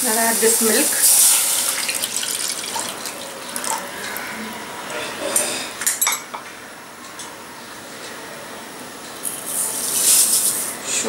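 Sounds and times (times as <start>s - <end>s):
milk pouring into hot pan: 0.3s - 4.4s.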